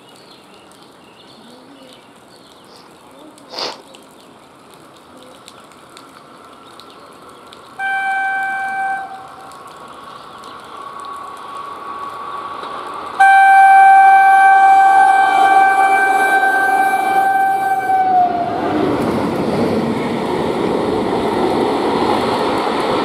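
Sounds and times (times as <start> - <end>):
train horn blasts: 7.8 - 9.4, 13.2 - 18.6
train rumbling on rails: 10.5 - 23.0.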